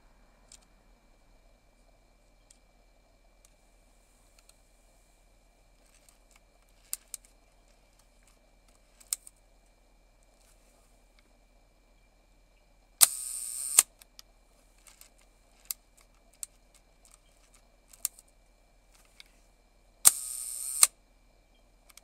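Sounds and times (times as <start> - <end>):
faint mechanical clicks: 0.4 - 0.8, 4.3 - 4.7, 5.7 - 9.4, 13.0 - 22.0
camera shutter click: 13.0 - 13.9, 20.1 - 20.9
shutter governor buzzing: 13.0 - 13.9, 20.0 - 20.9.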